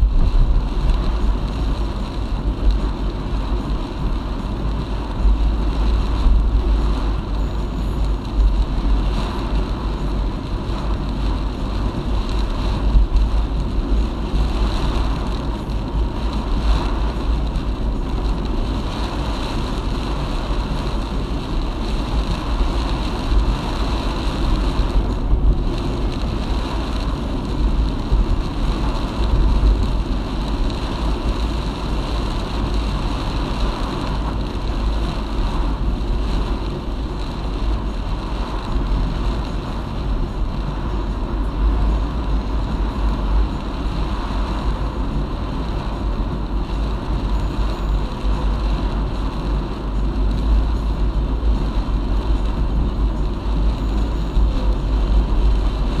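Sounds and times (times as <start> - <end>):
car road noise: 0.0 - 56.0
deep rumble: 0.0 - 56.0
strong wind: 0.0 - 56.0.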